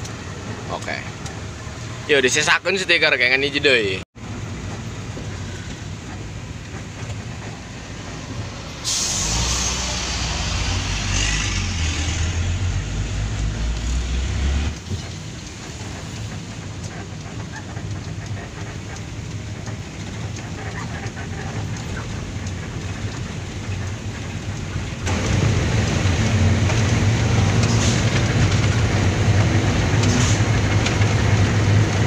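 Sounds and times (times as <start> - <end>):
heavy truck passing: 3.6 - 32.0
truck engine rumble from cab: 3.7 - 32.0
road hiss: 4.2 - 20.1, 25.1 - 30.8.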